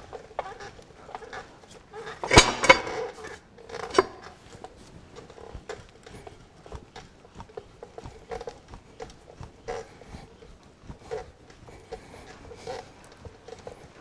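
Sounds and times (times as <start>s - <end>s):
metal clanks: 0.0s - 6.2s
light metal ticks and rattles: 0.0s - 14.0s.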